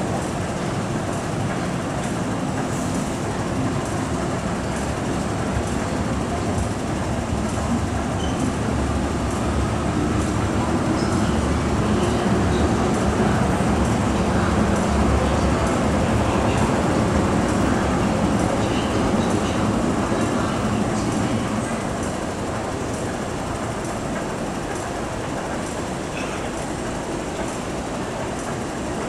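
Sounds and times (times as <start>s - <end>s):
metro train rumbling: 0.0s - 29.0s.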